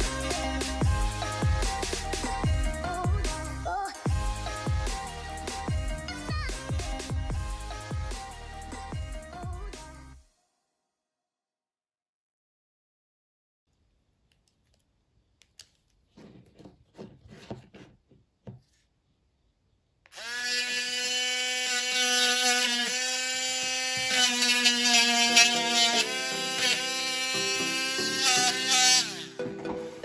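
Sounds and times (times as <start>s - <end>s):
power tool whining: 20.1s - 30.0s.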